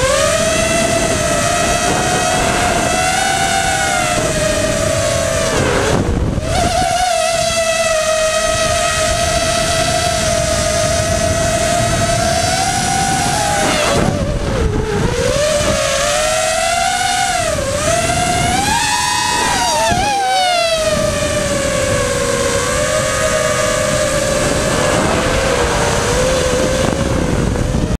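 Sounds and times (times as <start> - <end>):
drone propellers whining: 0.0 - 28.0
wind rumble on microphone: 0.0 - 28.0.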